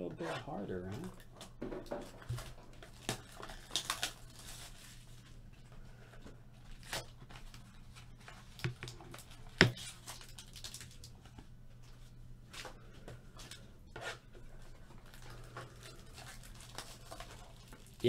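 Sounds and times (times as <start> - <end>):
wrapper tearing and crinkling: 2.3 - 5.2, 8.5 - 11.2, 15.0 - 18.0.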